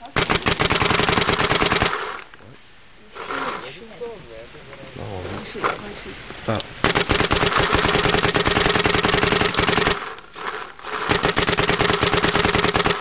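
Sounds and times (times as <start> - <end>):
paintball marker firing: 0.1 - 2.3, 6.8 - 13.0.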